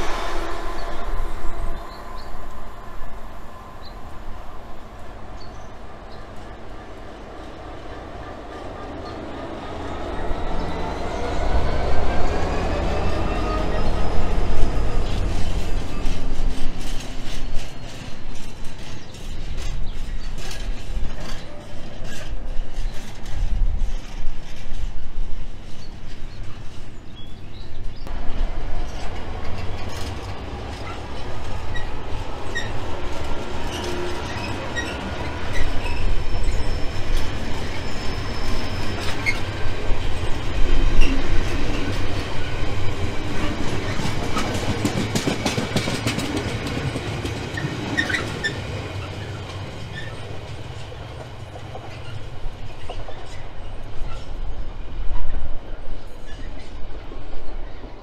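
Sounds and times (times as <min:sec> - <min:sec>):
train wheels rumbling: 0:00.0 - 0:58.0
thin wheel squeal: 0:33.7 - 0:39.5
wheels clicking over rail joints: 0:38.8 - 0:53.4.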